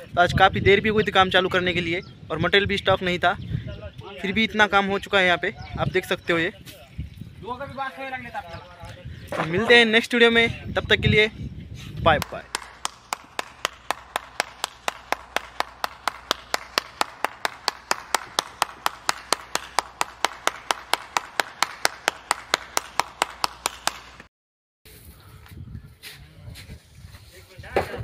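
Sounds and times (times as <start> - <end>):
person clapping hands: 12.1 - 24.3.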